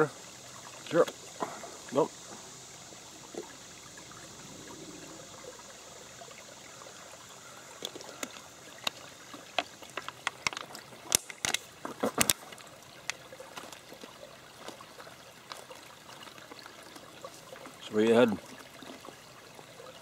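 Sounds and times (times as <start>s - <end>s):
stream trickling over stones: 0.0s - 20.0s
sharp clicks and rustles: 7.9s - 13.8s.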